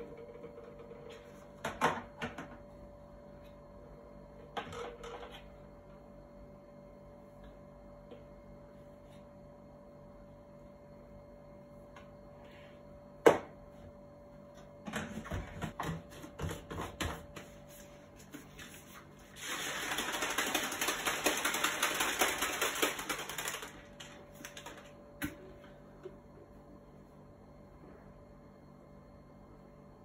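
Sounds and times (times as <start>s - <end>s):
shaker bottle rattling: 19.4s - 24.9s.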